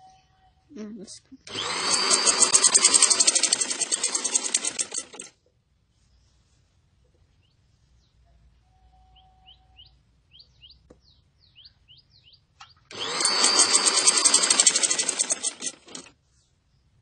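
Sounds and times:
sewing machine stitching: 1.5s - 5.3s, 12.9s - 16.1s
faint bird chirps: 7.4s - 12.9s.

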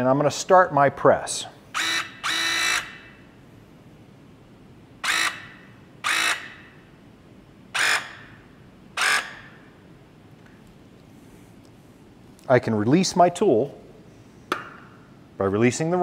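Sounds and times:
hydraulic press tool whirring: 1.8s - 3.1s, 5.0s - 6.6s, 7.8s - 8.3s, 9.0s - 9.5s.

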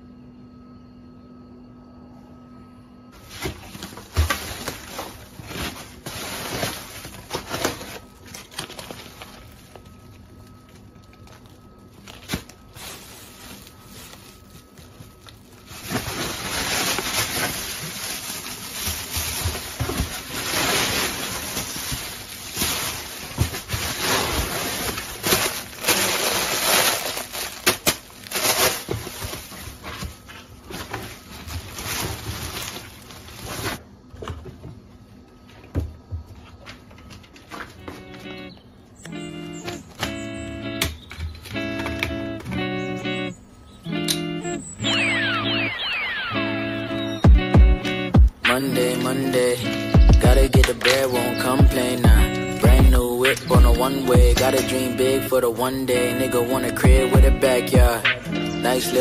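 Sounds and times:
plastic bags rustling and crinkling: 3.2s - 34.5s.

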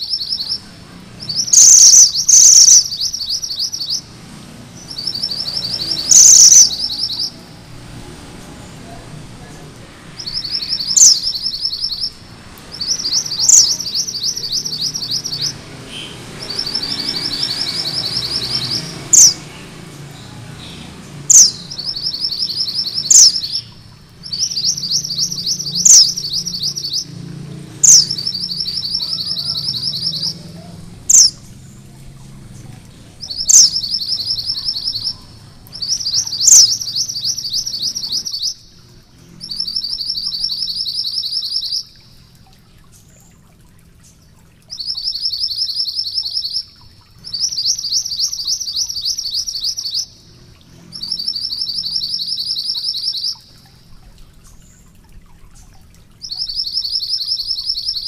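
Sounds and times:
bird whistling and trilling: 1.2s - 4.1s, 4.8s - 7.4s, 10.2s - 19.4s, 20.6s - 27.2s, 27.8s - 31.4s, 33.2s - 38.8s, 39.4s - 42.2s, 44.6s - 50.3s, 50.9s - 58.0s.

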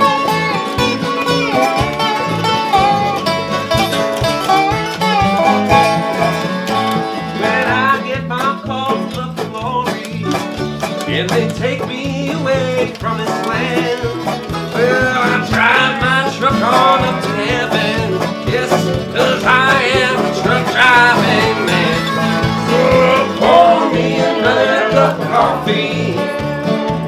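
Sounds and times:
harmonica-like lead line: 0.0s - 8.1s, 13.5s - 27.0s
electric bass: 0.0s - 27.0s
electric guitar: 0.0s - 27.0s
resonator guitar: 0.0s - 27.0s
steady drum beat: 0.0s - 27.0s.

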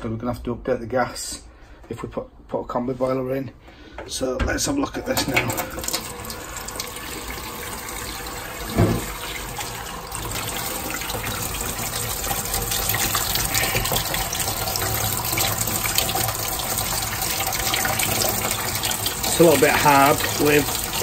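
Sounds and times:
tap water running into sink: 5.1s - 21.0s.

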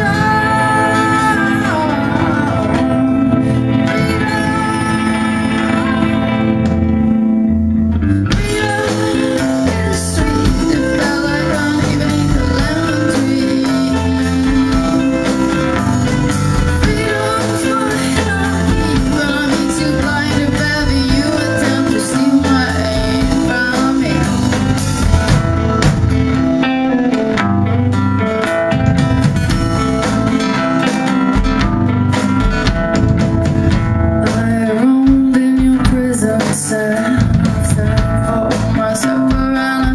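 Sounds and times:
woman singing: 0.0s - 7.1s, 8.0s - 25.1s, 34.2s - 39.9s
acoustic guitar strumming: 0.0s - 37.3s
bass guitar: 0.0s - 39.9s
electric guitar: 0.0s - 39.9s
drums with cymbals: 8.3s - 26.6s, 28.8s - 39.9s.

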